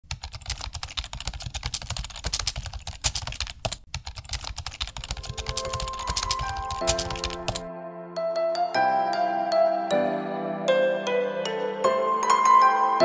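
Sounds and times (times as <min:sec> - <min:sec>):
fast keyboard typing: 0:00.0 - 0:07.7
soft melodic notes: 0:05.2 - 0:13.0.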